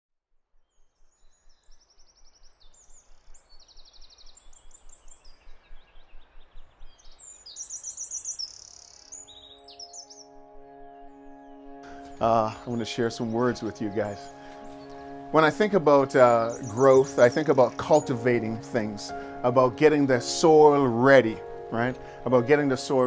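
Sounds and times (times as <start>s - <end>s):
songbirds chirping and trilling: 0.6s - 23.0s
soft sustained music chord: 7.6s - 23.0s.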